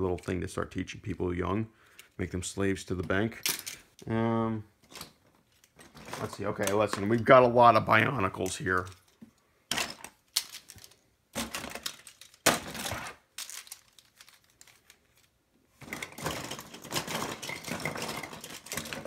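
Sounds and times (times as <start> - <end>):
plastic pieces clattering: 4.8 - 7.4, 8.4 - 19.0.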